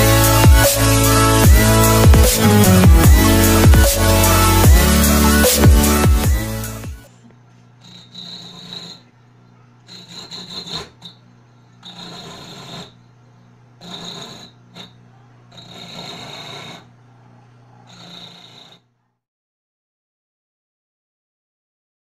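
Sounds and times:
coconut scraping on grater: 7.8s - 9.1s, 9.8s - 13.2s, 13.8s - 17.0s, 17.8s - 18.8s.

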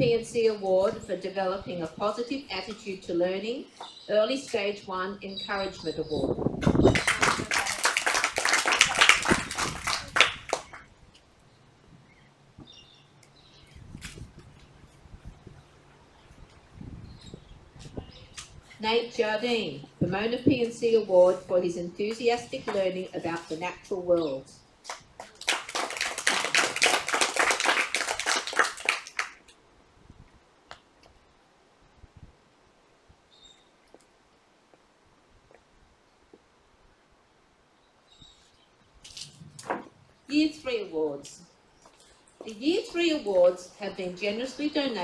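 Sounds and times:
children applauding: 6.8s - 10.9s, 25.2s - 29.4s.

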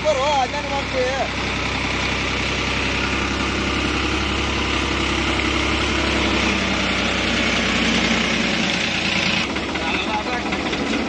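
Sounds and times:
tractor diesel engine running: 0.0s - 11.0s.

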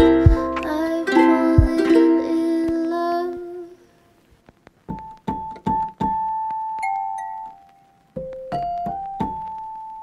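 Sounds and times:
keyboard chords: 0.0s - 0.7s.

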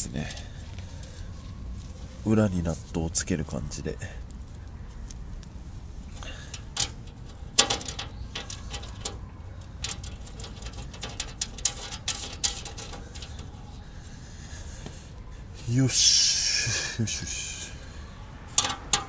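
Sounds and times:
metallic clicks and taps: 18.5s - 19.0s.

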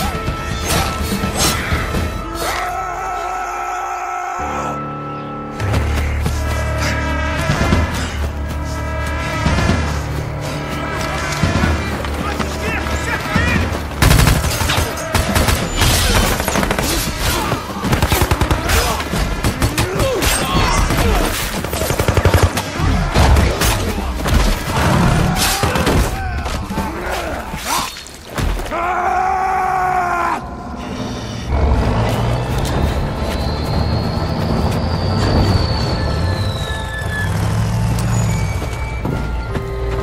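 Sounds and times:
film score music: 0.0s - 40.0s
gunshots: 14.0s - 26.0s.

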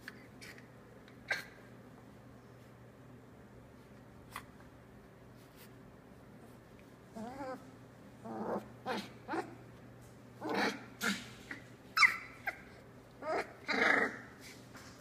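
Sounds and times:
puppies growling and whining: 1.2s - 1.7s, 7.0s - 9.7s, 10.4s - 14.6s.

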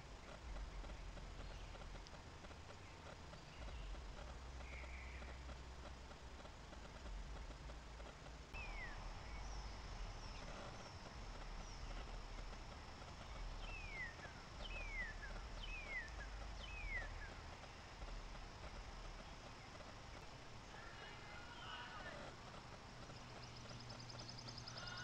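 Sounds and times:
bird whistling: 13.6s - 17.3s.

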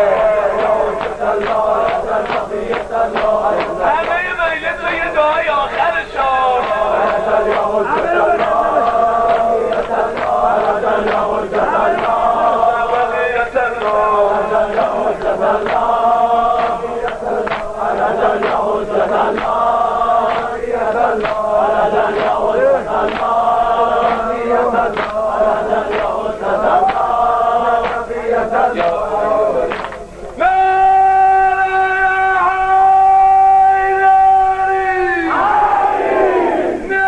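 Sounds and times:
men chanting together: 0.0s - 36.9s
steady beat of sharp strikes: 15.6s - 19.6s.

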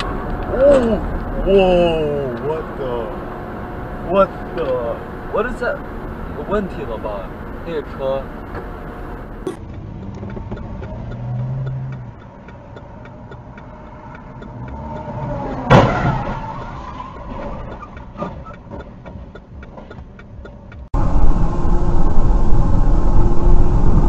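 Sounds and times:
car cabin hum: 0.0s - 16.4s.

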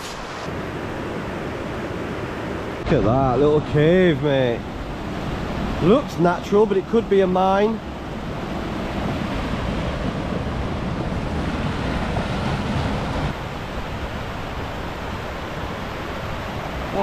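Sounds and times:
river rushing over rocks: 0.0s - 17.0s
wind rumble on microphone: 7.7s - 17.0s.

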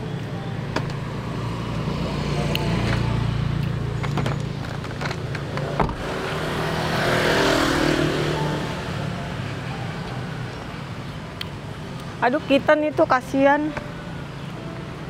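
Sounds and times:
motorbike passing: 0.0s - 11.2s
engine humming: 0.0s - 15.0s.

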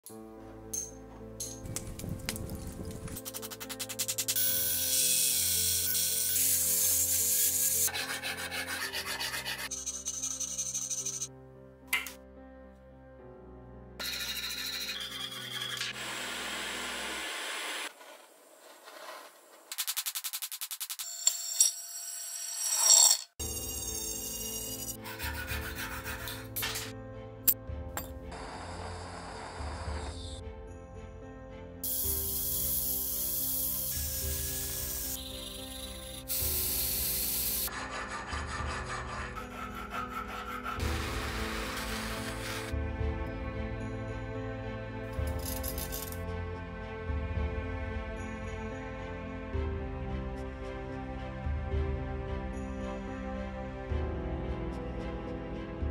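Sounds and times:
background music: 0.0s - 17.2s, 23.4s - 55.9s
rasping and scraping on metal: 6.4s - 11.3s, 14.0s - 16.0s, 24.1s - 26.9s, 37.6s - 41.0s
gas torch hissing: 31.9s - 35.2s, 35.8s - 37.7s.

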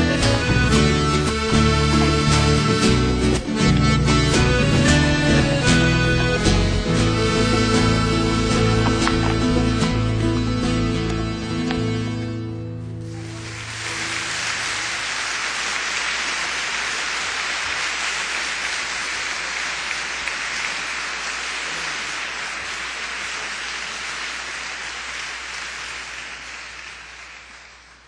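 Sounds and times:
crowd applauding: 0.0s - 10.2s, 13.0s - 28.0s.

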